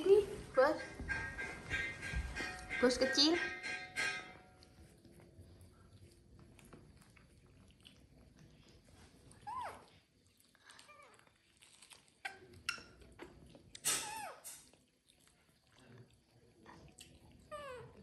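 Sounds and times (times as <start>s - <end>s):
baby monkey squeaking: 13.8s - 14.5s.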